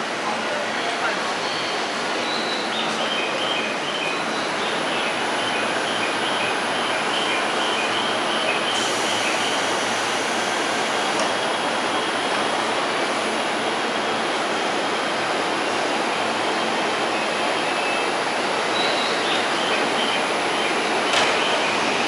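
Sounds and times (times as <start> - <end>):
electric train humming: 8.7 - 17.5.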